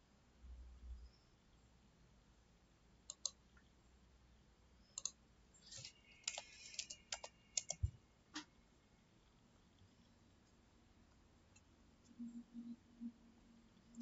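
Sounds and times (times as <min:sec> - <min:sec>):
computer mouse clicks: 0:03.1 - 0:03.7, 0:04.9 - 0:08.5.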